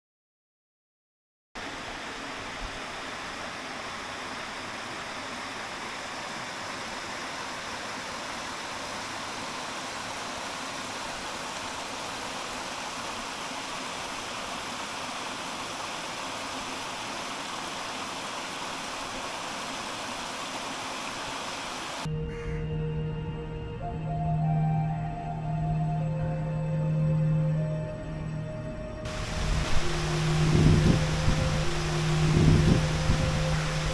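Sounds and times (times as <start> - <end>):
waterfall rushing: 1.6 - 22.1, 29.1 - 33.9.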